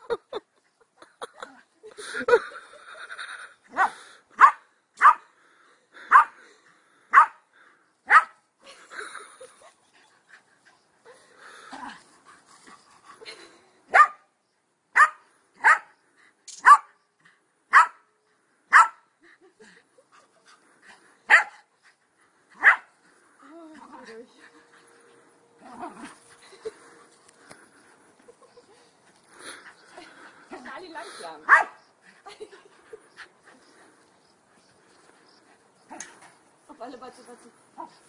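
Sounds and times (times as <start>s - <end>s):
dog barking: 3.8s - 5.2s, 7.1s - 7.4s, 8.1s - 8.3s, 13.9s - 14.2s, 15.0s - 15.9s, 16.6s - 16.9s, 17.7s - 18.0s, 18.7s - 19.0s, 21.3s - 21.5s, 31.5s - 31.8s.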